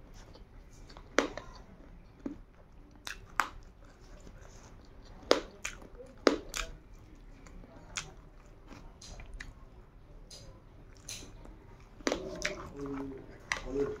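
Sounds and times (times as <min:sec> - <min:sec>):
person chewing with mouth smacks: 0:00.1 - 0:09.6, 0:10.3 - 0:14.0.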